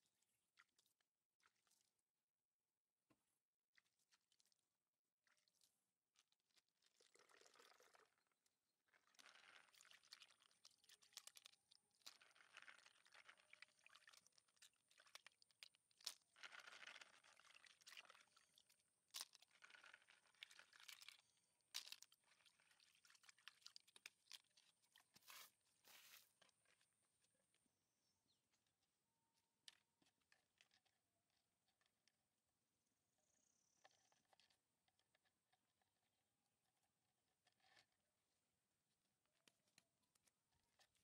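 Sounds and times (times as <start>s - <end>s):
material rustling in plastic bucket: 25.1s - 26.3s.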